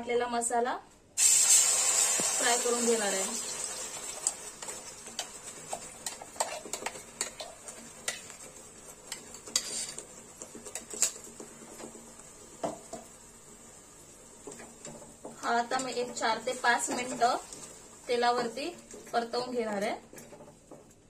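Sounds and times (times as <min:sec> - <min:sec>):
metal spoon scraping container: 0:09.4 - 0:10.0.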